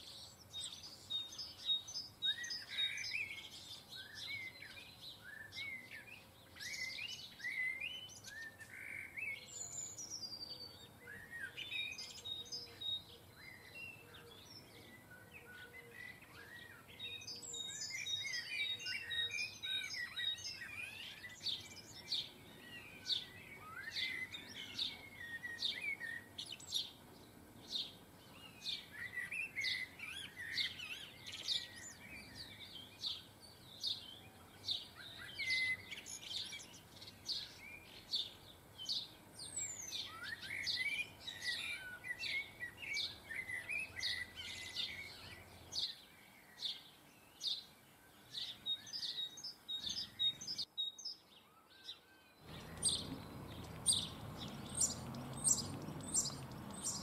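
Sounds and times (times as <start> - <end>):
birds twittering: 0.0 - 57.0
goldfinches chirping: 15.8 - 57.0.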